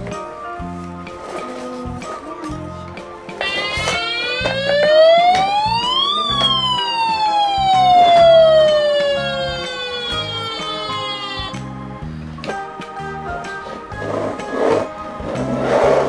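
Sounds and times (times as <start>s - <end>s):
background music: 0.0s - 16.0s
electronic siren wailing: 3.4s - 11.6s.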